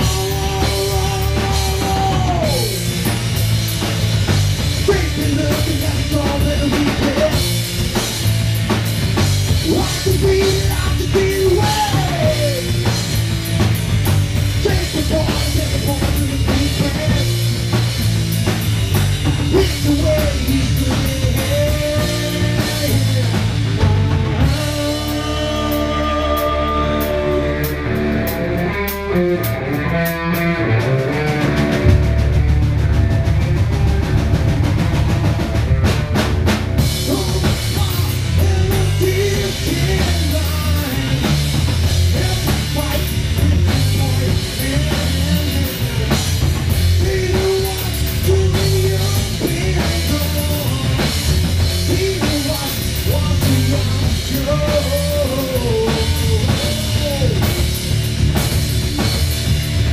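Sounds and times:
rock band playing live: 0.0s - 59.9s.

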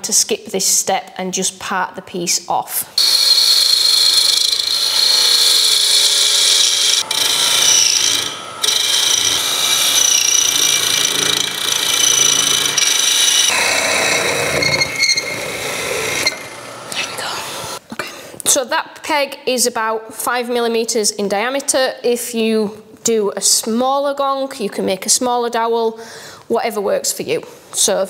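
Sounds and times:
lathe tool scraping wood: 3.0s - 17.8s.

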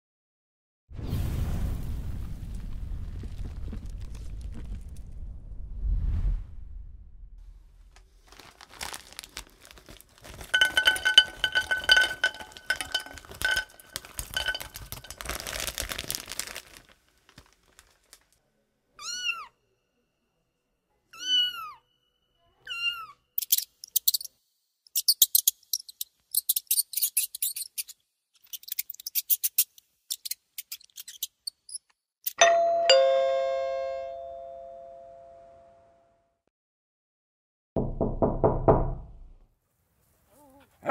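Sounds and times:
scratchy rattling: 10.2s - 15.6s
cat meowing: 19.0s - 19.6s, 21.1s - 21.8s, 22.6s - 23.2s
rapid high chirping: 23.4s - 24.3s, 24.9s - 27.9s
two-tone doorbell: 32.4s - 36.1s.

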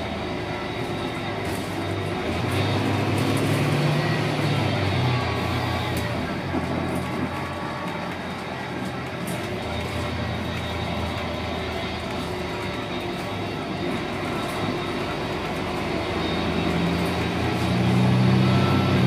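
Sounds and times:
diesel bus engine running: 0.0s - 19.0s.

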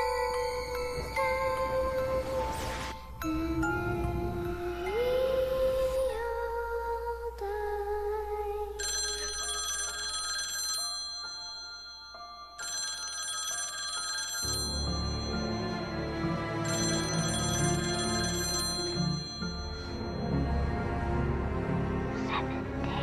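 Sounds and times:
low music bed: 0.0s - 13.0s, 14.4s - 23.0s
mobile phone ringing: 8.8s - 20.4s.

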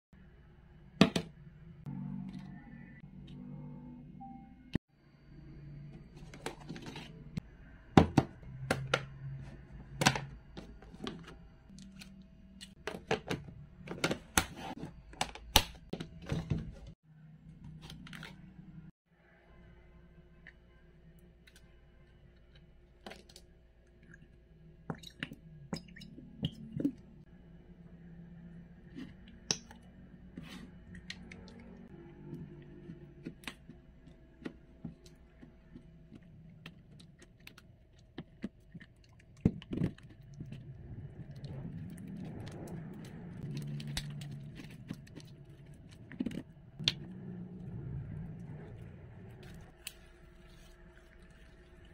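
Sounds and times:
slime stirred in plastic bowl: 32.3s - 47.0s, 48.7s - 51.9s.

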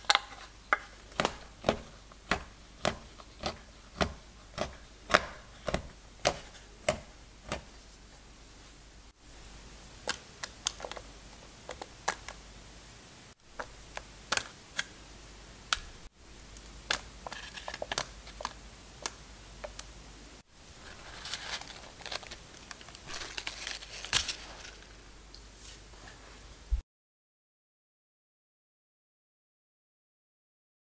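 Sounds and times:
paper crinkling: 17.2s - 18.6s, 20.7s - 25.8s.

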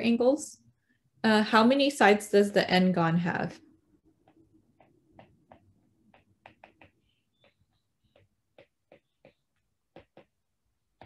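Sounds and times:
stylus tapping on a tablet screen: 3.6s - 11.0s.

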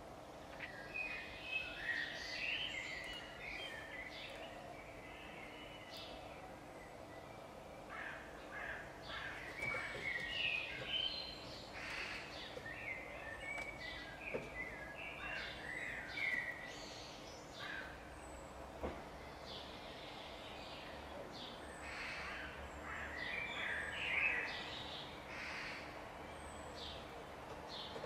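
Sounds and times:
magpies calling: 7.8s - 14.2s, 15.1s - 16.7s, 25.3s - 26.0s.

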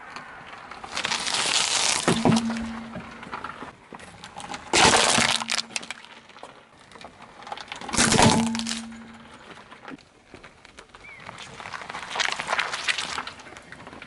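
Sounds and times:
plastic toy cracking under tyre: 0.1s - 14.0s
tyre crushing drink can: 0.9s - 3.3s, 4.2s - 6.4s, 7.6s - 9.5s.

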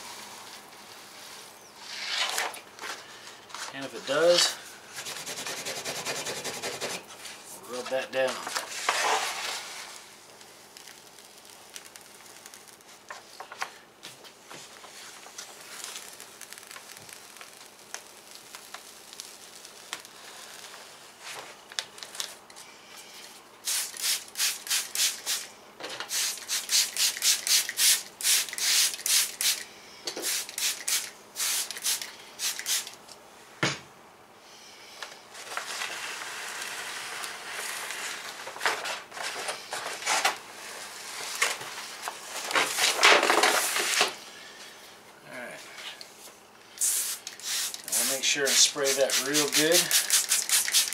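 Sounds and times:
spray bottle squirting: 23.6s - 25.5s, 26.1s - 29.6s, 30.2s - 33.0s, 46.8s - 50.9s.

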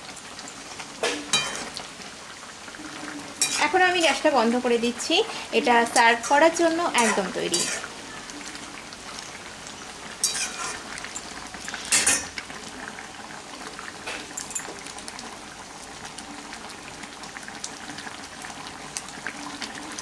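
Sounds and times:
curry bubbling and sizzling: 0.0s - 20.0s
spatula scraping pan: 3.4s - 4.2s, 5.9s - 8.0s, 10.2s - 10.9s, 11.7s - 12.3s.

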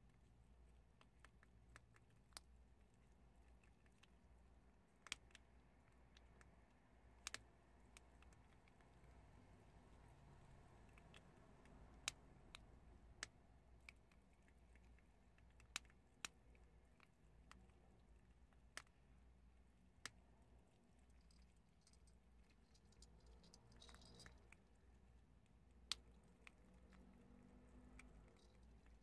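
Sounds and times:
animals crunching hard chickpeas: 20.7s - 24.6s.

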